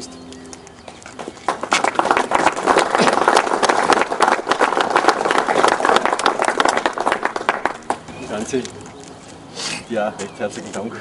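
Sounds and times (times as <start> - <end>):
crowd applauding: 1.2 - 8.1.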